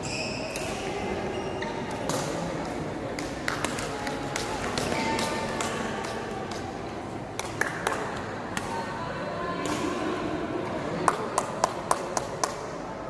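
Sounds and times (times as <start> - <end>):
voices in a hall: 0.0 - 13.0.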